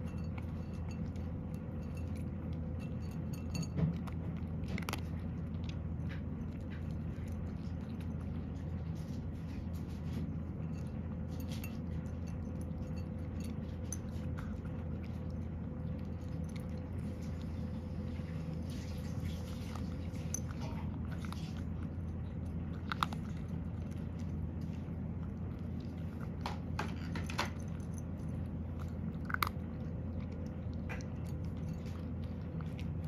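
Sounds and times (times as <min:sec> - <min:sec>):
cat crunching dry kibble: 0:00.0 - 0:33.0.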